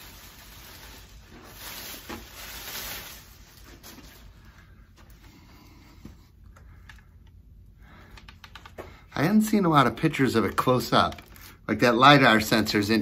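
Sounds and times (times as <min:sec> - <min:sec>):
plastic wrap rustling and crinkling: 0:00.0 - 0:05.2, 0:10.0 - 0:13.0.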